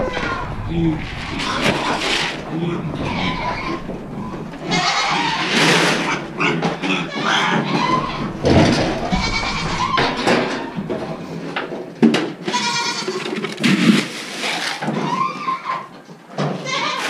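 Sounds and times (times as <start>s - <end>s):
goats bleating: 1.4s - 11.0s, 12.4s - 13.4s.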